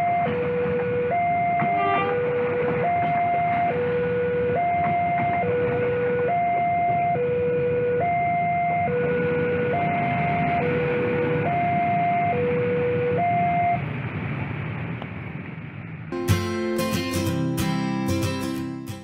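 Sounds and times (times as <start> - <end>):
passing train rumble: 0.0 - 6.3, 8.8 - 19.0
motorcycle traffic: 0.0 - 19.0
guitar music: 16.1 - 19.0.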